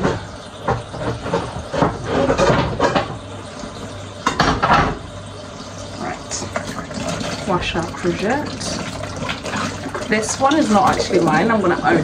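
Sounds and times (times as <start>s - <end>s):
dishes and utensils clattering: 0.0s - 3.2s, 4.2s - 5.1s.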